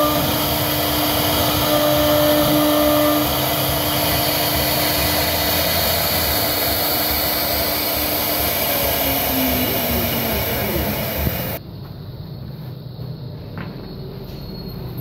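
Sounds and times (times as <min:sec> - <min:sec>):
router spindle whirring: 0:00.0 - 0:11.6.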